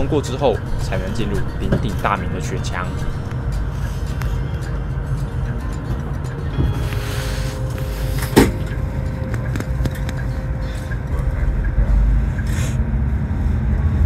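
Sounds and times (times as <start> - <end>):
bus engine and road rumble: 0.0 - 14.0
sharp knock: 8.2 - 8.8.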